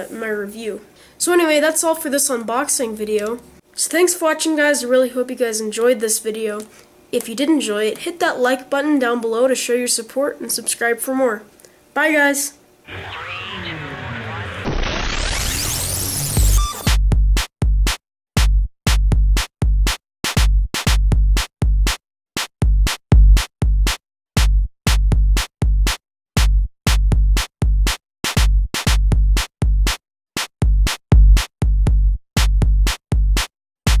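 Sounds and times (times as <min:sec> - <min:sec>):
electronic music with bass hits: 0:12.9 - 0:17.5.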